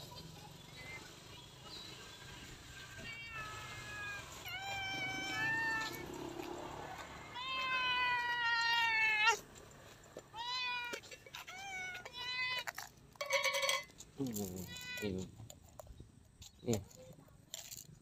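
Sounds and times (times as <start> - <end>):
cat meowing: 3.0 - 6.1, 7.3 - 9.4.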